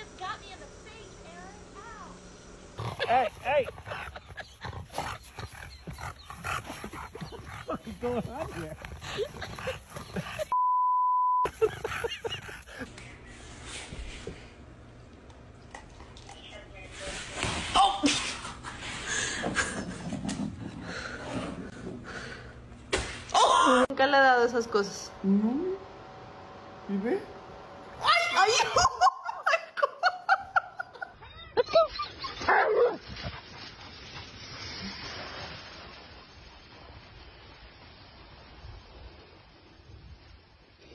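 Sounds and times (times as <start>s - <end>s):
steady outdoor hiss: 0.0s - 10.5s, 11.5s - 21.0s, 21.6s - 40.9s
censor bleep: 10.5s - 11.5s.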